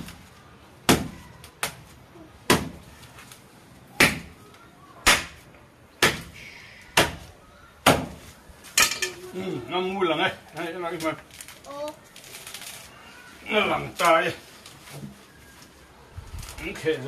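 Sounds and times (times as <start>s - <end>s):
machete chopping coconut husk: 0.8s - 1.9s, 2.5s - 2.8s, 4.0s - 4.4s, 5.0s - 6.4s, 7.0s - 8.2s.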